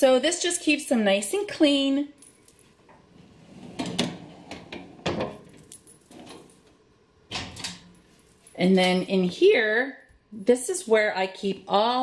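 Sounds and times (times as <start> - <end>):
drawers knocking and rattling: 3.6 - 6.5.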